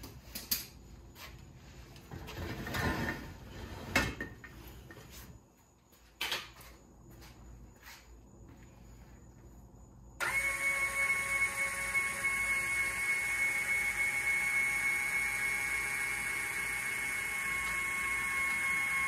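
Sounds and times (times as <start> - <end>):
electric motor whine: 10.2 - 19.0.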